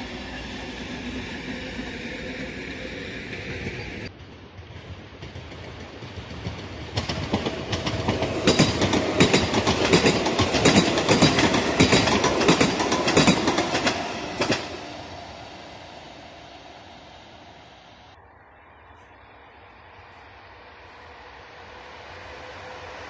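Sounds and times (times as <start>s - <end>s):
train wheels clattering over rail joints: 3.3s - 14.9s.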